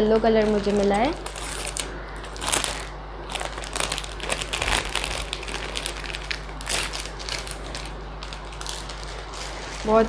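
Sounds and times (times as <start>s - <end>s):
plastic packaging crinkling: 0.0s - 10.0s.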